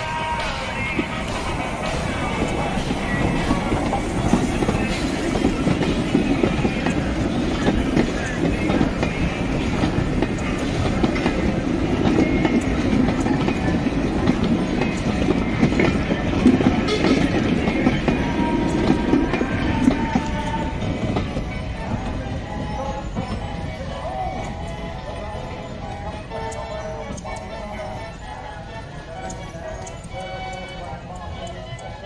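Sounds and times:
train rumble: 0.0 - 32.0
wheels clicking over rail joints: 0.0 - 32.0.

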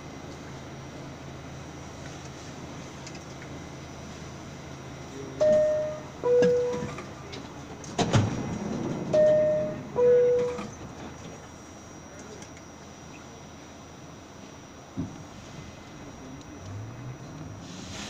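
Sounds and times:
stopped train humming: 0.0 - 18.0
subway door chime ding-dong: 5.4 - 7.1, 8.4 - 10.9.

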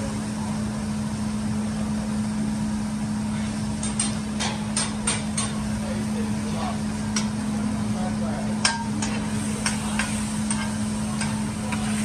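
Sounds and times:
spatula clinking on griddle: 8.6 - 12.0
food sizzling on griddle: 8.9 - 12.0.

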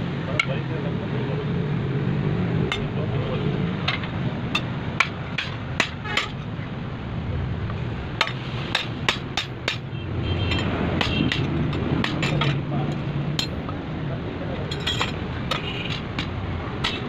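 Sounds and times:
hammer striking metal on anvil: 8.2 - 9.9, 10.5 - 13.7, 14.7 - 17.0.

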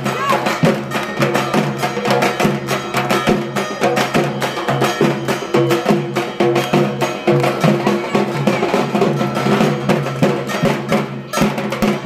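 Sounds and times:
barrel drum beaten with sticks: 0.0 - 12.0.

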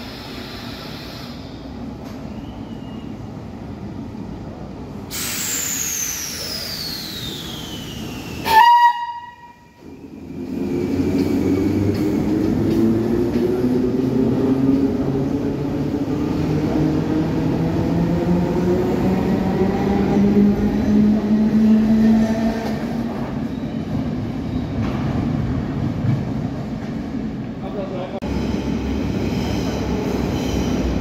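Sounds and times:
electric train passing: 3.5 - 26.7
train horn blast: 8.4 - 9.7.

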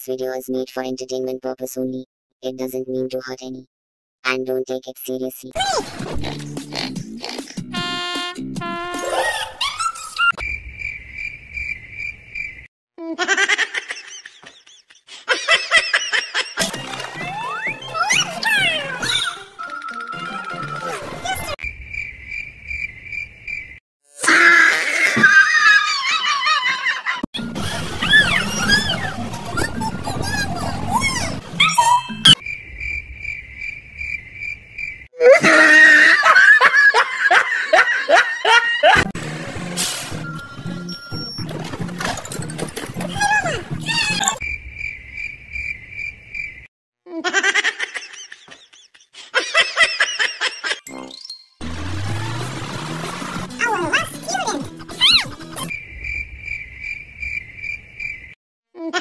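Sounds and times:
music: 5.9 - 9.3, 16.6 - 21.6, 39.1 - 44.4, 50.9 - 55.7
laughter-like squeals: 9.2 - 10.4, 24.2 - 30.4, 35.2 - 39.0, 54.8 - 55.7
crickets chirping: 10.4 - 12.7, 21.6 - 23.8, 32.4 - 35.1, 44.4 - 46.7, 55.7 - 58.4
person laughing loudly: 25.2 - 29.0, 35.2 - 39.1, 47.1 - 50.8
high pulsing chirp: 55.0 - 58.4.

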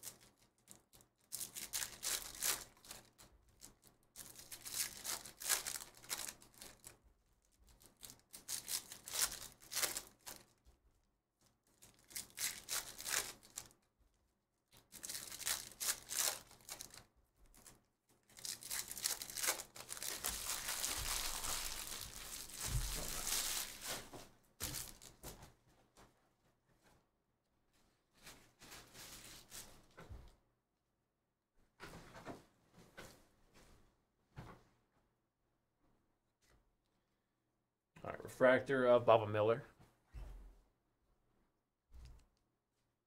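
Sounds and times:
foil wrappers tearing and crinkling: 0.0 - 7.0, 7.7 - 10.6, 11.7 - 13.8, 14.8 - 17.7, 18.3 - 25.2.

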